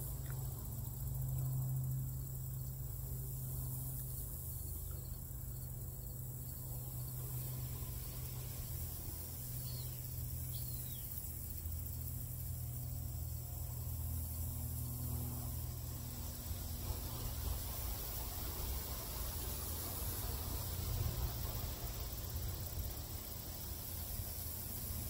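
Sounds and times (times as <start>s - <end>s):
low hum: 0.0s - 23.0s
high hiss: 6.3s - 25.0s.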